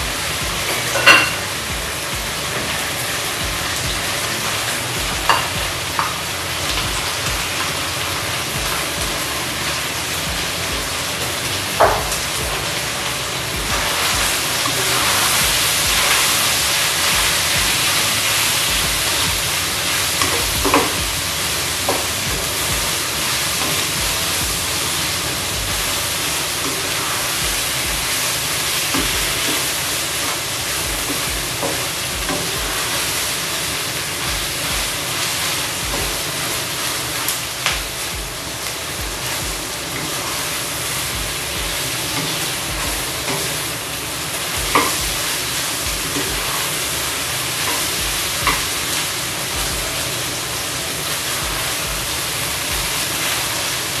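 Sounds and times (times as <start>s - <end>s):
food sizzling in a wok: 0.0s - 54.0s
metal spatula knocking pan: 0.9s - 1.5s.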